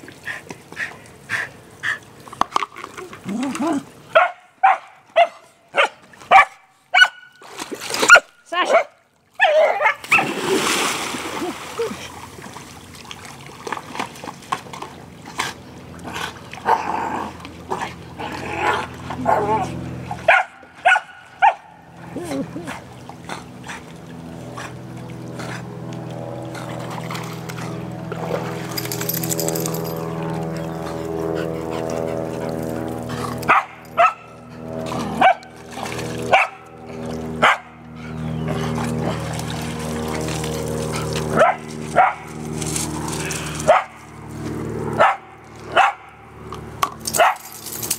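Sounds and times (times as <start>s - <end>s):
dog barking: 4.2s - 7.3s, 20.3s - 21.7s, 33.5s - 34.3s, 35.2s - 35.4s, 36.3s - 36.6s, 37.4s - 37.8s, 41.4s - 42.2s, 43.7s - 44.0s, 45.0s - 46.1s, 47.2s - 47.5s
water splashing: 5.9s - 21.3s, 26.0s - 31.0s, 31.8s - 37.9s, 38.5s - 44.0s
steady droning hum: 14.9s - 47.9s.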